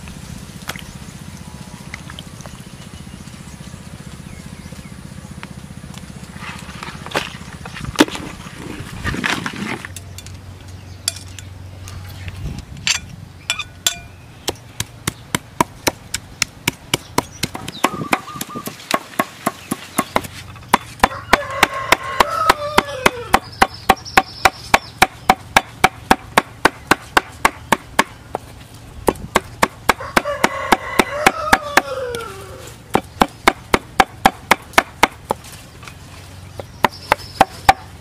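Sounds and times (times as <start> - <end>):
cleaver chopping on wooden board: 14.4 - 28.4, 29.0 - 32.0, 32.9 - 35.4, 36.6 - 37.9.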